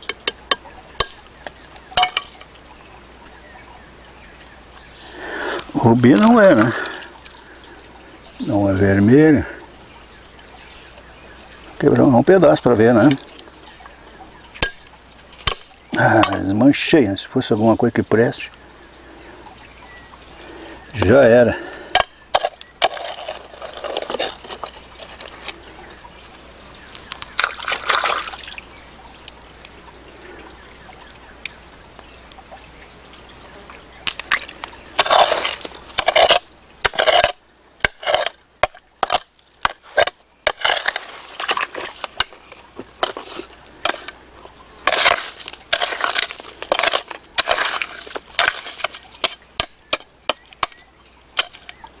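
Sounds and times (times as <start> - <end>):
hand hoe chopping damp soil: 21.9 - 25.4, 34.1 - 44.2, 44.8 - 50.8, 51.4 - 51.8.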